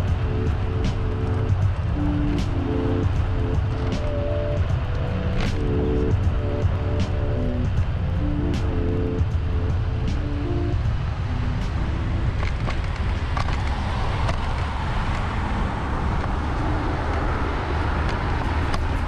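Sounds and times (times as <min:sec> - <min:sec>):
faint tuneful notes: 0:00.0 - 0:13.8
wind and road noise: 0:00.0 - 0:19.0.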